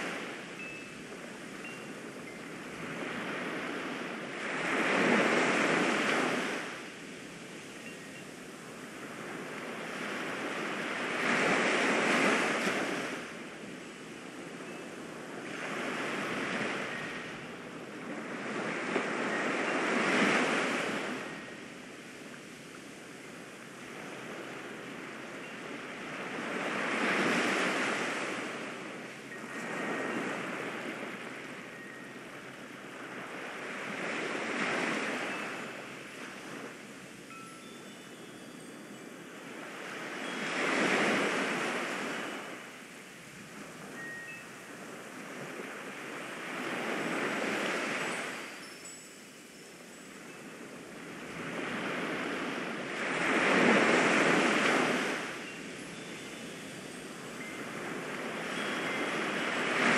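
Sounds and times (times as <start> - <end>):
waves breaking: 23.6 - 38.8, 50.2 - 59.9.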